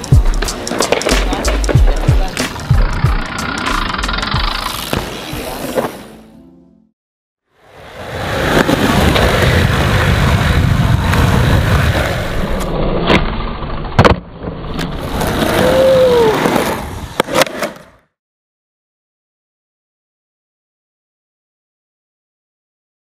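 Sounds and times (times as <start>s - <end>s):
skateboard clacking on concrete: 0.0s - 2.7s, 17.2s - 17.9s
skateboard wheels rolling on concrete: 0.0s - 6.3s, 7.6s - 18.2s.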